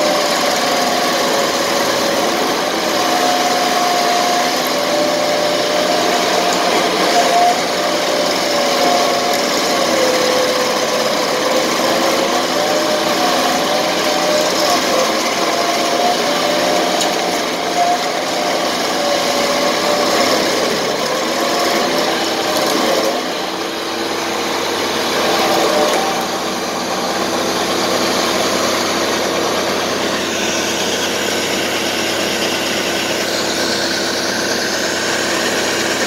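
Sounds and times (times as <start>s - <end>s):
cutter wheel grinding wood: 0.0s - 36.0s
stump grinder engine running: 0.0s - 36.0s.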